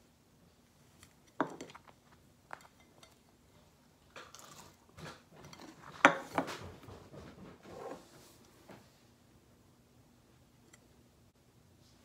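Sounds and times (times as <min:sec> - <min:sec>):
tableware clattering: 0:04.2 - 0:07.0.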